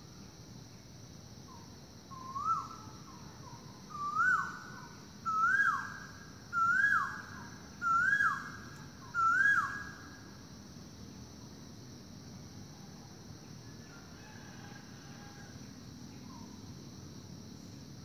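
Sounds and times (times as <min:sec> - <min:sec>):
bird calling ko-el: 0:02.2 - 0:10.0.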